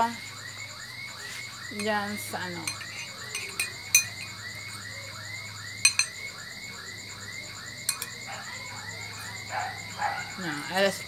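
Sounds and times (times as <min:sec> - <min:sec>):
rhythmic chirping: 0:00.0 - 0:11.0
metal spoon clinking on ceramic bowl: 0:02.6 - 0:04.3, 0:05.8 - 0:06.2, 0:07.9 - 0:08.1.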